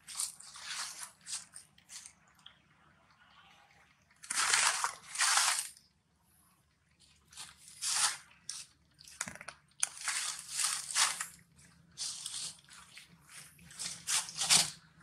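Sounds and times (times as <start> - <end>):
dry leaves crunching and rustling: 0.0 - 2.1, 4.3 - 5.7, 7.4 - 8.6, 9.8 - 11.4, 12.0 - 14.8.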